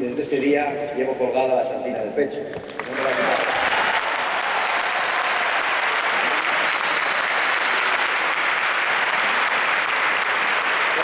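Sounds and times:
large crowd applauding: 2.6 - 11.0.

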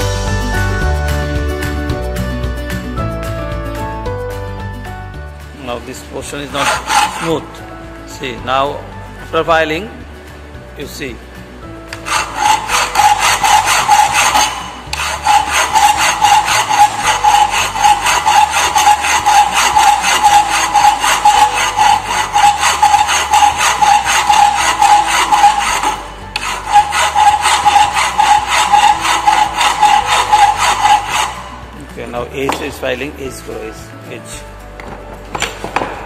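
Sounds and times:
hand file rasping on steel plate: 6.1 - 7.7, 11.9 - 32.8.

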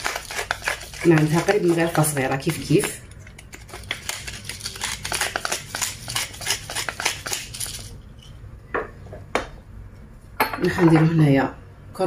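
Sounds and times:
pepper mill grinding: 0.0 - 8.3.

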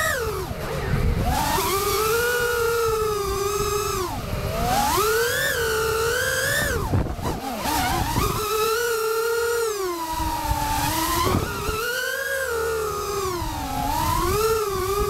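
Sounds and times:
drone motors whining: 0.0 - 15.0
wind rush: 6.0 - 8.5.

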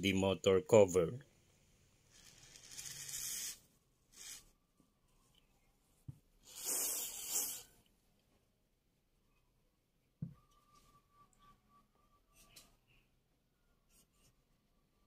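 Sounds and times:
aerosol can spraying: 6.5 - 7.6.

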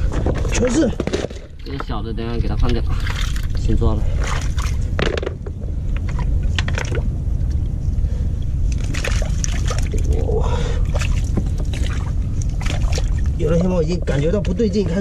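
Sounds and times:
steady low rumble: 0.0 - 15.0
hands splashing in shallow water: 8.8 - 10.1.

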